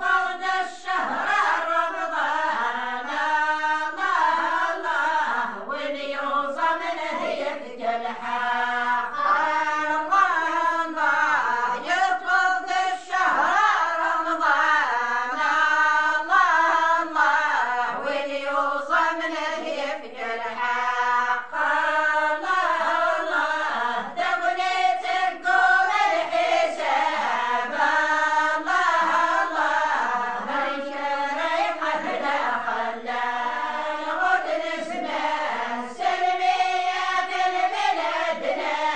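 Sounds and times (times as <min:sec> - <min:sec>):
women singing together: 0:00.0 - 0:38.9.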